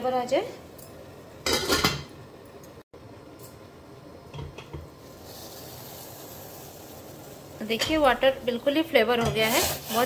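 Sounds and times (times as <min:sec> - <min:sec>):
water boiling: 0:04.0 - 0:10.0.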